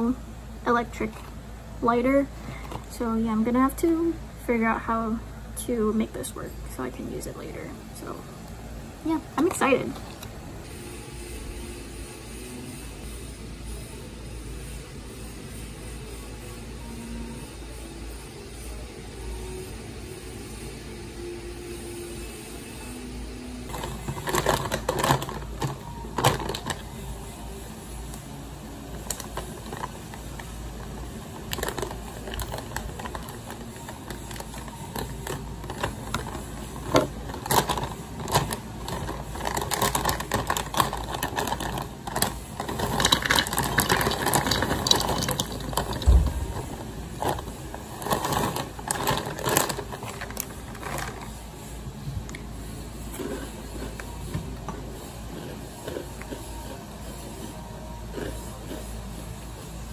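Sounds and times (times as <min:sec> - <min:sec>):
objects clicking and rustling: 0:23.7 - 0:26.9, 0:29.0 - 0:51.4.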